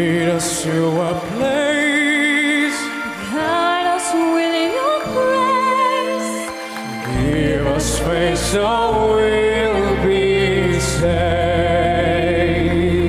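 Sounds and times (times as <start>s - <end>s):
woman singing with vibrato: 2.7s - 6.6s
instrumental backing track with bass: 6.7s - 13.0s.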